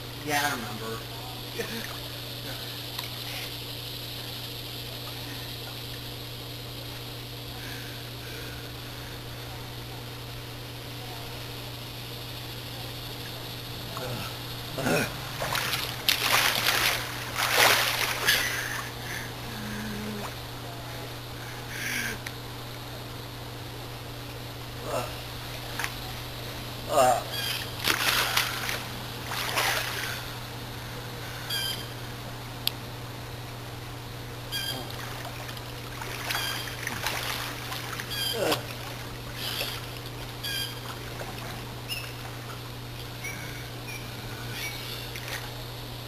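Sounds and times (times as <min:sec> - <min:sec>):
steady low hum: 0:00.0 - 0:46.0
swimmer splashing in pool: 0:15.1 - 0:19.0, 0:27.8 - 0:30.3, 0:34.8 - 0:42.5.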